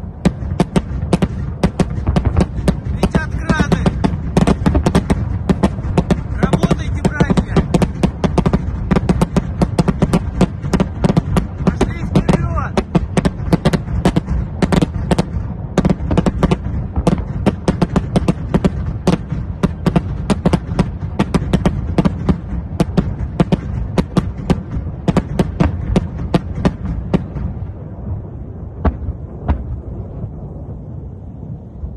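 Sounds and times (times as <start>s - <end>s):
rocket launcher firing cracks: 0.0s - 28.0s, 28.7s - 30.2s
low rumble: 0.0s - 31.9s.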